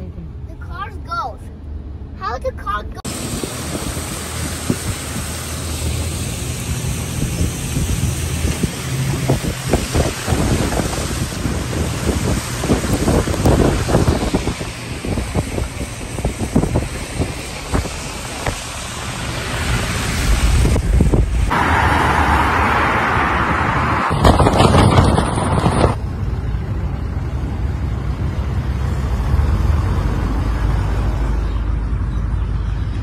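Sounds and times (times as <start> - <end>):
low vehicle rumble: 0.0 - 33.0
wind on microphone: 3.1 - 5.5, 6.9 - 21.6
vehicle driving through slush: 3.1 - 26.0.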